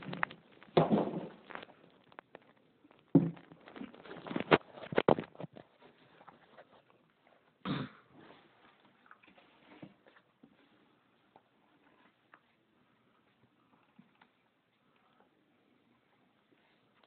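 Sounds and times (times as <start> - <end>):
knocks and rustles of packaging: 0.0 - 2.3.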